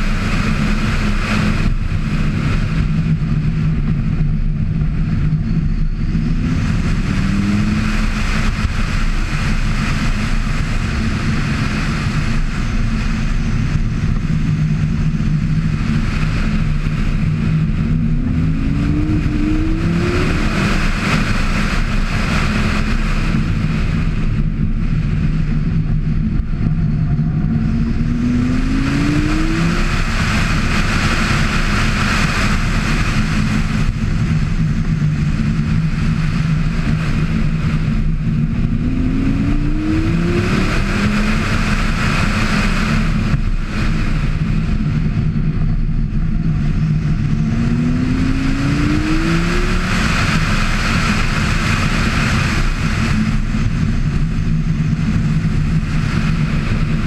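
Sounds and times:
wind and road noise: 0.0 - 57.0
car engine revving hard: 6.0 - 12.6, 16.0 - 23.6, 26.4 - 44.3, 46.4 - 54.3.

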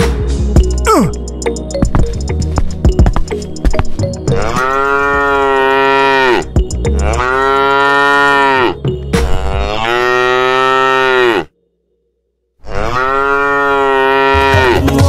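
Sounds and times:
cow mooing: 4.3 - 11.6, 12.6 - 14.8.

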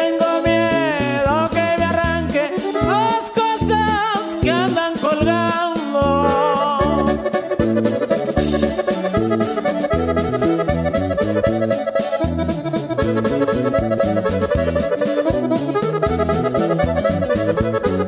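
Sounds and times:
accordion melody: 0.0 - 18.0
bass line: 0.0 - 18.0
steady drum beat: 0.5 - 18.0.

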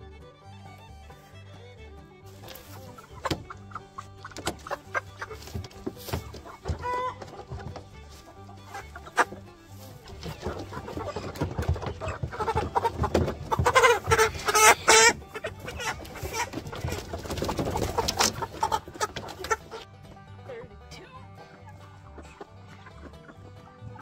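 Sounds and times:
chickens clucking and squawking: 0.0 - 24.0
feet and wings scuffling on plastic: 2.3 - 19.8.

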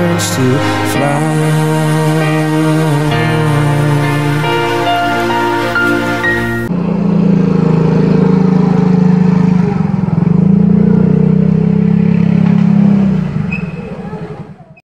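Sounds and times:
motorcycle engine running: 6.7 - 13.8.

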